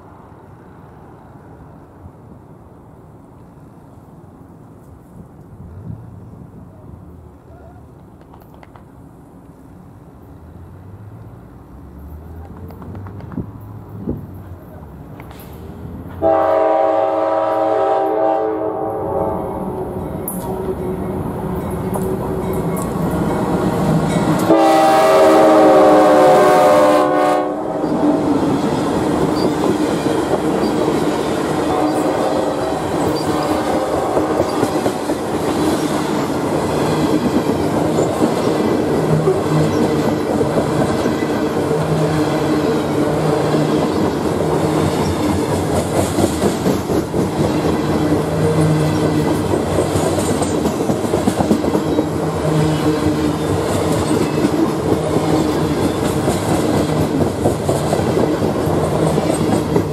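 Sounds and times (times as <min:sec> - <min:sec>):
train wheels clicking over rails: 0:07.9 - 0:09.6, 0:12.0 - 0:16.3, 0:19.4 - 0:25.2, 0:27.7 - 0:59.9
diesel locomotive horn: 0:16.1 - 0:21.0, 0:24.2 - 0:28.3, 0:31.5 - 0:35.0, 0:52.3 - 0:53.4.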